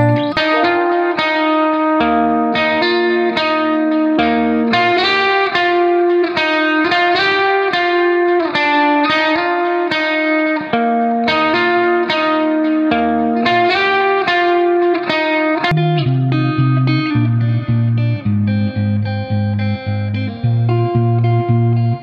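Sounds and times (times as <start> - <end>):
low bass line: 0.0 - 0.8, 15.7 - 22.0
plucked guitar notes: 0.0 - 22.0.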